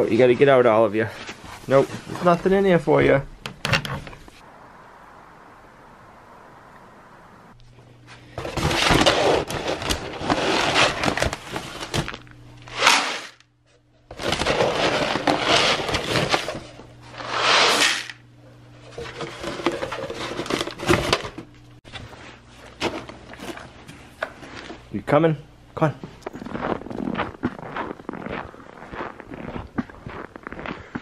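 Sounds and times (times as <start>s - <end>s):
low steady hum: 0.0s - 31.0s
paper sack rustling: 8.4s - 13.4s, 14.1s - 18.1s
pellets pouring into plastic bucket: 12.7s - 13.4s, 14.2s - 16.4s, 17.2s - 18.2s.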